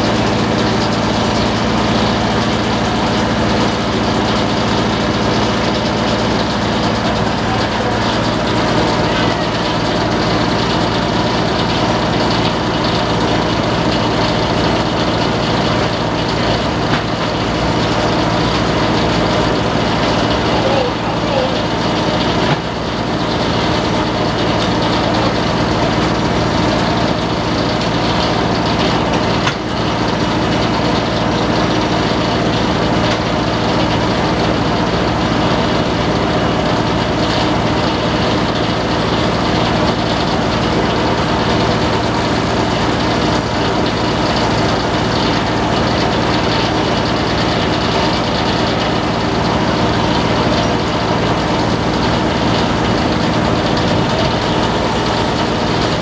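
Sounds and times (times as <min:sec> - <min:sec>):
sawmill blade and engine humming: 0:00.0 - 0:56.0.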